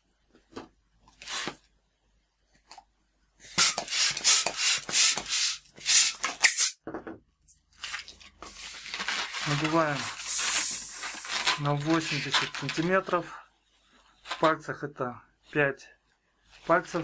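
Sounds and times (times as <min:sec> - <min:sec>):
latex balloon handling: 0:07.8 - 0:13.2.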